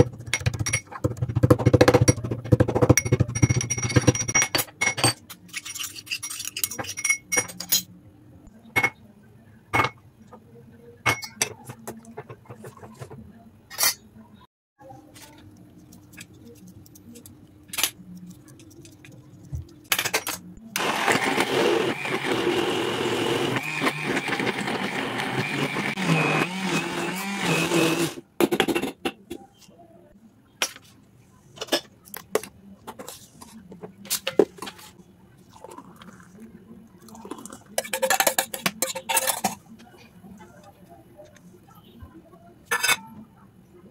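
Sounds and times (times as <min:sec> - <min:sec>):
electric blender running: 0:20.8 - 0:28.2.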